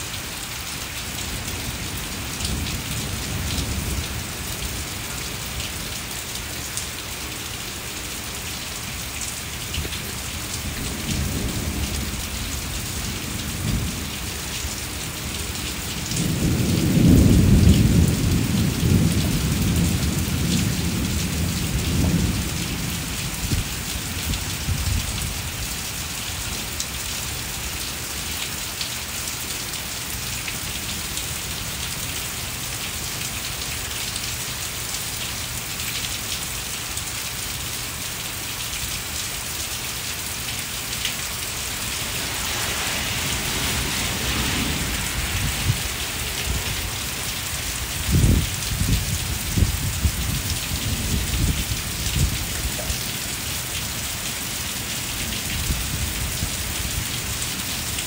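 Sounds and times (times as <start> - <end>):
heavy rain on patio and plants: 0.0 - 58.0
thunder rumble: 16.0 - 25.3, 41.5 - 52.9.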